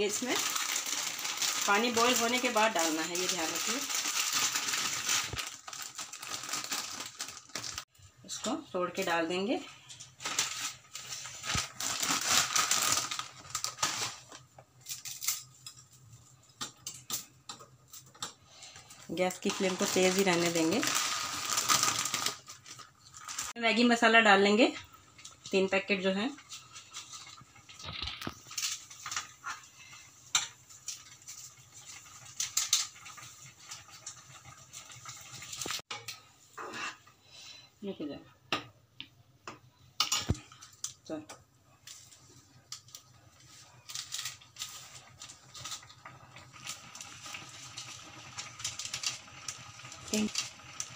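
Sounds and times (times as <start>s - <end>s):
foil sachet crinkling: 0.0s - 7.9s, 10.2s - 15.5s, 19.1s - 23.5s, 26.4s - 29.6s, 41.9s - 50.9s.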